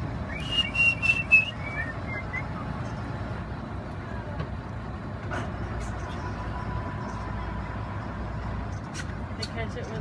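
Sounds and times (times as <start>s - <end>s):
high whistled notes: 0.3s - 2.6s.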